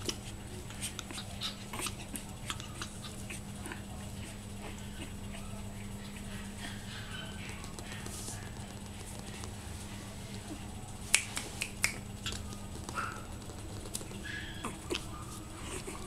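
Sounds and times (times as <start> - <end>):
finger snaps: 11.1 - 12.6.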